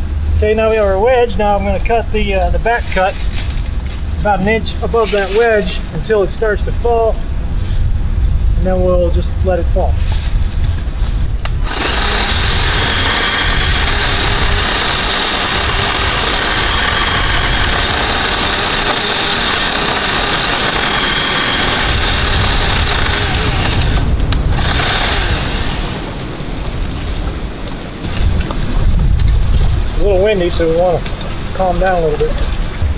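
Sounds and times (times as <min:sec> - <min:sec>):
wind rumble on microphone: 0:00.0 - 0:32.9
electric chainsaw whining: 0:11.4 - 0:26.2.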